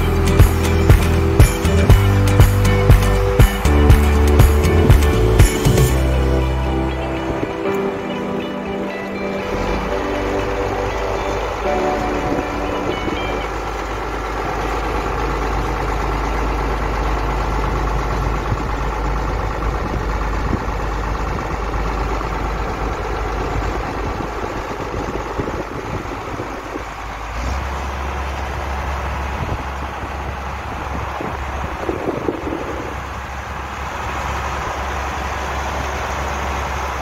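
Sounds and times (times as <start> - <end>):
diesel tractor engine running: 0.0 - 37.0.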